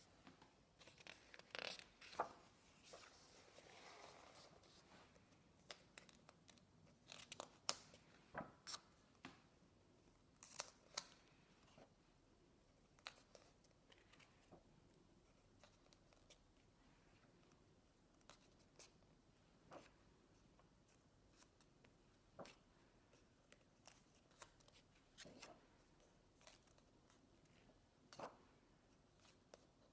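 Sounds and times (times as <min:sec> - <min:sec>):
book pages turning: 0:00.8 - 0:04.9.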